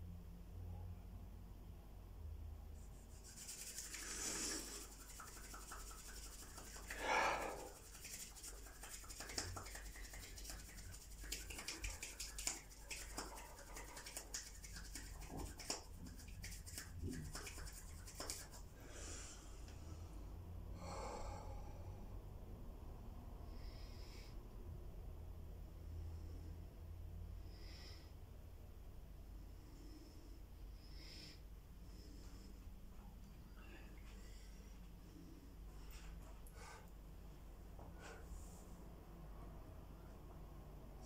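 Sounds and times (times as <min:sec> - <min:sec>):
palms rubbing together: 0:02.8 - 0:18.7
man breathing forcefully: 0:06.8 - 0:07.8, 0:20.7 - 0:22.1.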